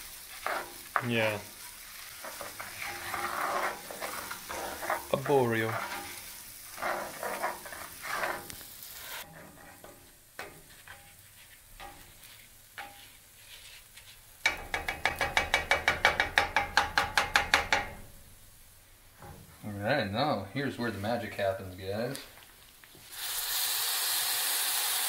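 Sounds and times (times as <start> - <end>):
spoon scraping skillet: 0.0 - 18.1
light sizzle: 0.0 - 25.0.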